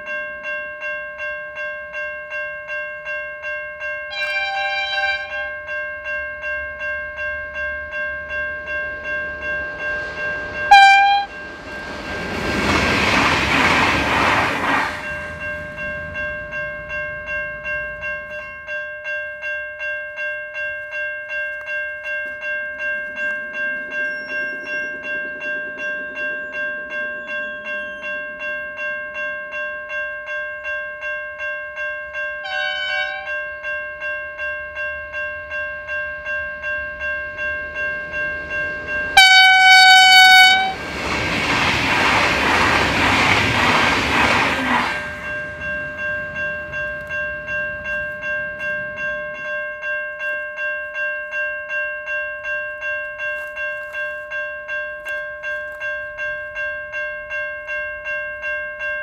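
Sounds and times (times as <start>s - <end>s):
level crossing bells ringing: 0.0s - 12.7s, 15.0s - 40.9s, 44.5s - 59.0s
train horn: 4.1s - 5.6s, 10.7s - 11.4s, 32.4s - 33.4s, 39.2s - 40.8s
train rushing past: 7.1s - 18.4s, 23.0s - 29.0s, 35.1s - 49.5s.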